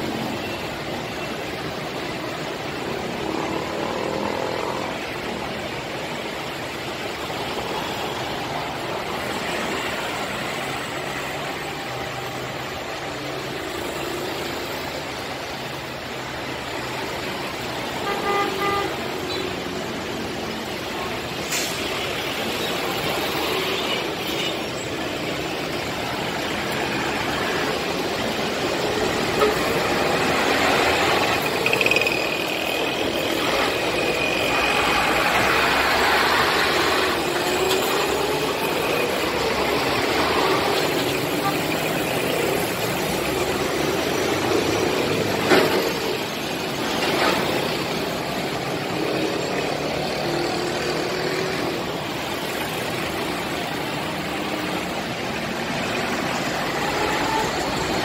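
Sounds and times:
road traffic noise: 0:00.0 - 0:58.0
vehicle horn honking: 0:18.0 - 0:19.0.

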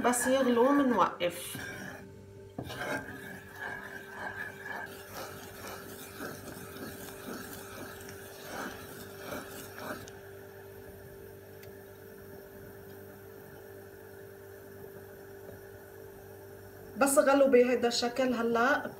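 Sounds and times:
spoon scraping saucepan: 0:00.0 - 0:10.2.

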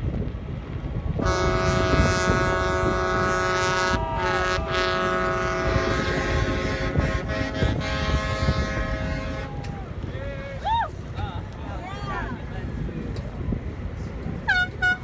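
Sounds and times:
wind on microphone: 0:00.0 - 0:15.0
boat horns blowing: 0:01.2 - 0:10.0, 0:14.4 - 0:15.0.

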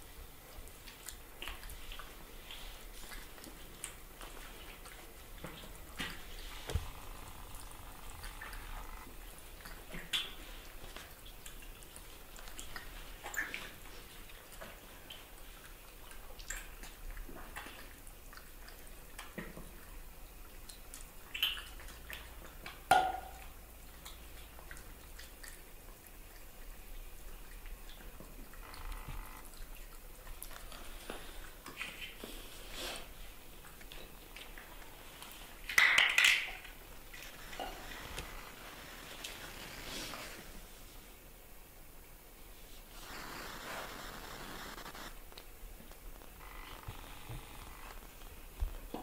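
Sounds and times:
baby monkey suckling wet smacks: 0:20.7 - 0:26.4, 0:27.5 - 0:32.4.

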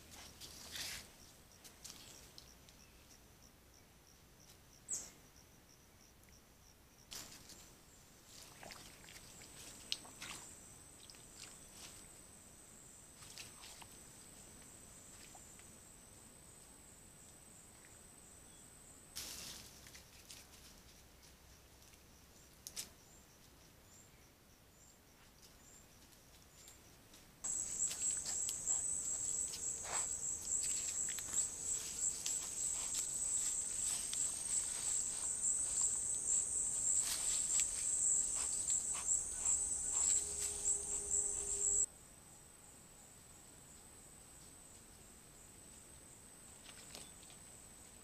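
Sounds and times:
animals stepping in dry leaves: 0:27.5 - 0:41.9
faint chirps: 0:27.5 - 0:41.9
insect trilling: 0:27.5 - 0:41.9.

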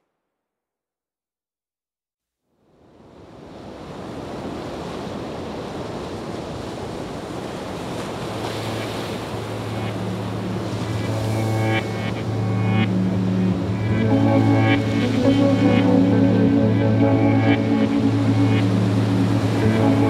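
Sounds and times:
ocean waves on shore: 0:02.6 - 0:20.0
low sustained musical note: 0:09.5 - 0:20.0.

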